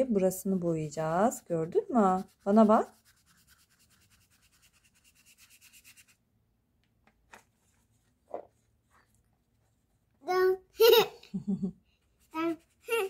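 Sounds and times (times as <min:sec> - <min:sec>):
wet brush scrubbing on paper: 0:00.0 - 0:06.2, 0:12.0 - 0:13.0.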